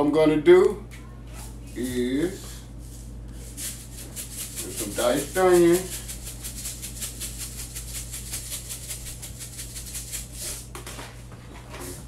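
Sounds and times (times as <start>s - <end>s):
spice shaker rattling: 1.4s - 10.7s.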